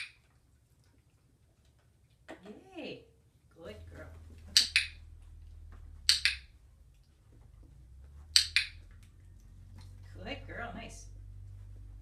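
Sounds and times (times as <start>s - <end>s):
clicker double clicks: 6.1s - 6.4s.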